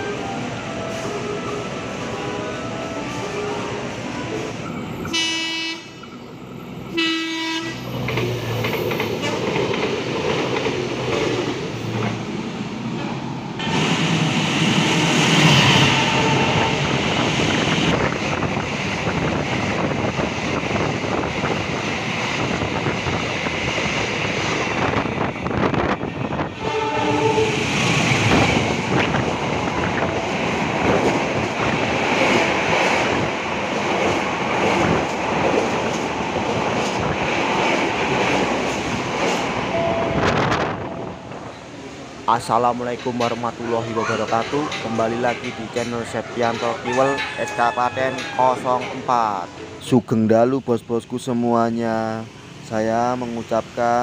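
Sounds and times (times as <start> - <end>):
train horn blasts: 5.0 - 6.0, 6.9 - 7.8, 15.5 - 17.0, 26.5 - 27.6, 39.7 - 41.4
passing train wheel clatter: 7.6 - 50.2.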